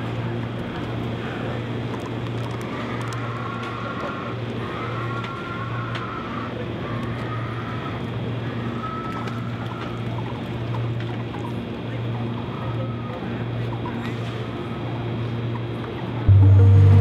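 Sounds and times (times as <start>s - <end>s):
truck engine running: 16.3s - 17.0s.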